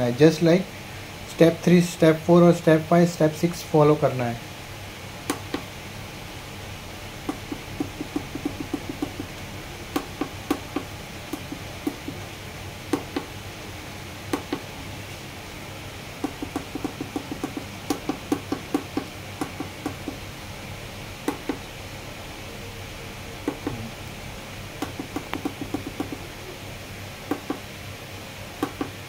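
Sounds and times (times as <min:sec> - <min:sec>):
keypad buttons clicking: 0:24.8 - 0:26.2.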